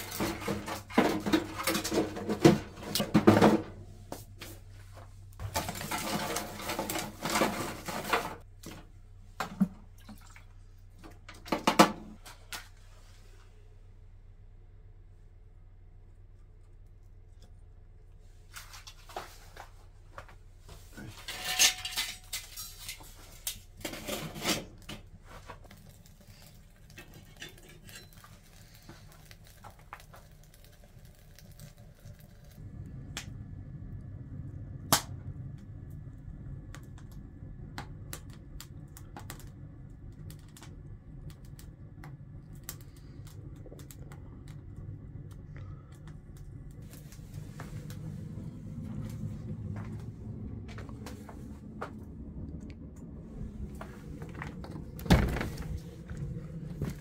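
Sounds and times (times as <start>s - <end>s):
fire rumbling: 0.0s - 57.0s
cast iron lid rings clattering: 21.2s - 23.0s.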